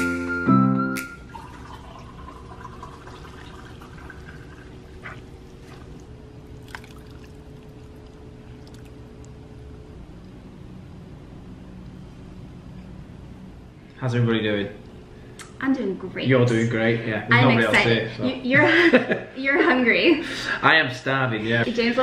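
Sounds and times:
steady low hum: 1.2 - 22.0
broth trickling into a bowl: 1.3 - 9.6.

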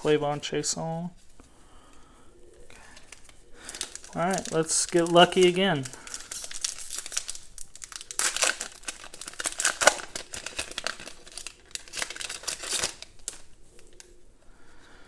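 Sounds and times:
foil wrapper crinkling and tearing: 2.8 - 14.1.

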